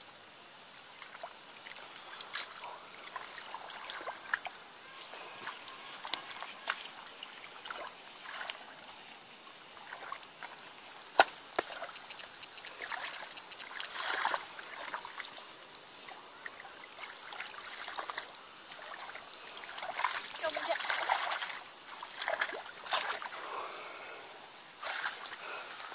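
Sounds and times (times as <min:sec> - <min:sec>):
hands sloshing in wet mud: 0:12.8 - 0:15.4, 0:16.4 - 0:23.4, 0:24.8 - 0:25.4.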